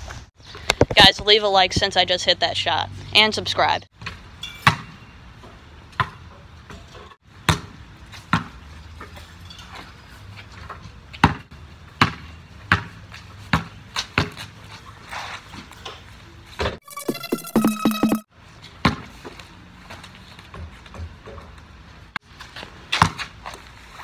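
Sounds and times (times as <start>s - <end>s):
ball hitting backboard and rim: 4.0s - 9.2s, 11.2s - 14.4s, 18.8s - 19.1s, 22.9s - 23.3s
basketball bouncing: 7.4s - 8.6s, 11.2s - 14.5s.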